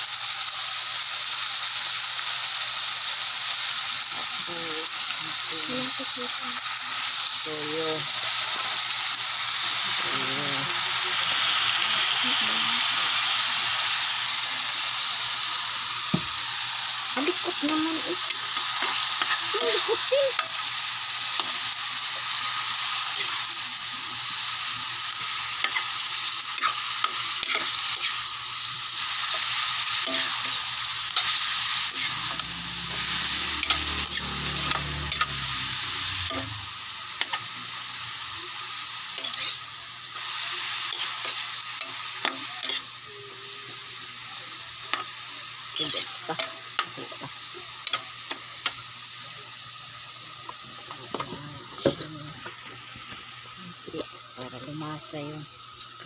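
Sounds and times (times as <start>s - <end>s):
meat and onion sizzling in a wok: 0.0s - 56.0s
metal ladle scraping a pan: 31.2s - 36.6s.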